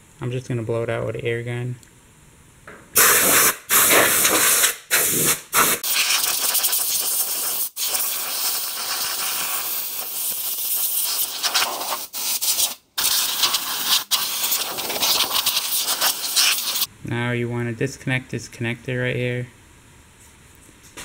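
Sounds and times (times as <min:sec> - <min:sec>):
compressed air blow gun hissing: 0:03.0 - 0:16.9.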